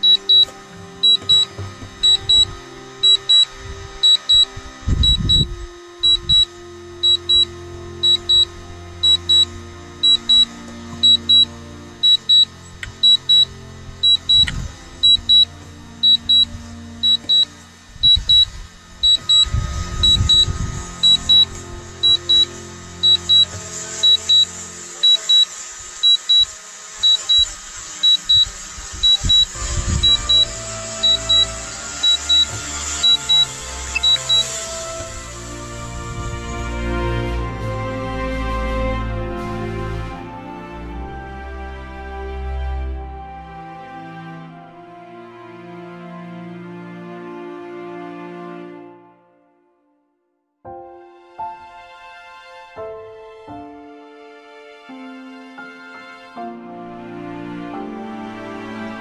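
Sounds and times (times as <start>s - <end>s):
background music: 0.0s - 25.6s, 29.4s - 50.1s, 50.7s - 59.0s
high-pitched electronic double beep: 0.0s - 34.6s.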